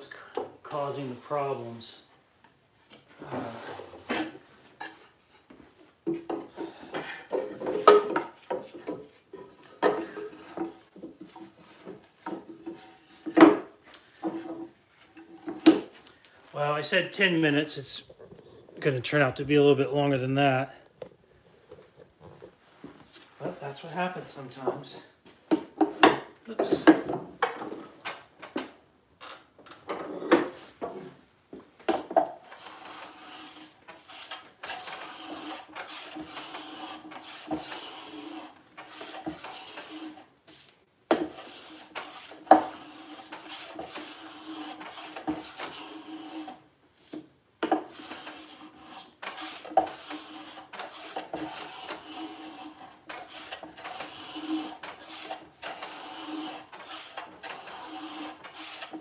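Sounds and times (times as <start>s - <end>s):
hand plane shaving wood: 32.4s - 59.0s.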